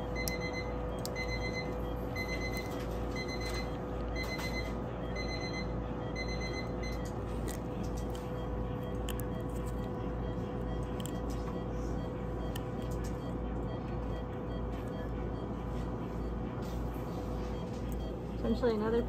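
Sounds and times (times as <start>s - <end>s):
machine hum: 0.0s - 19.0s
patient monitor beeping: 0.0s - 19.0s.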